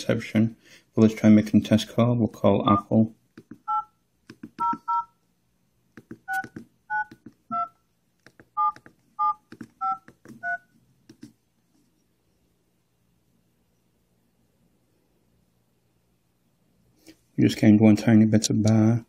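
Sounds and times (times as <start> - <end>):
phone touch-tone beeps: 3.7 - 4.0, 4.6 - 5.1, 6.3 - 7.8, 8.6 - 10.7
phone key-press clicks: 6.0 - 7.4.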